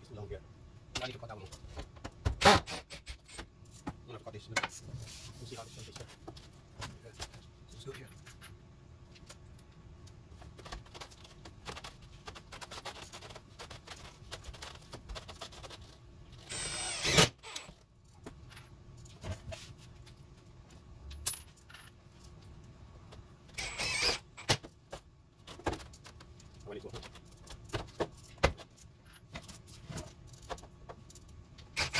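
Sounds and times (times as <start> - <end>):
cordless drill driving screws: 16.5 - 17.7, 23.6 - 24.5.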